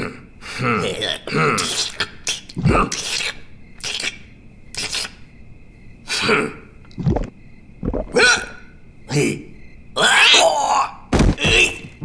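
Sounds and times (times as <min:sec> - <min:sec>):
short raspy rubbing noises: 0:01.7 - 0:05.2.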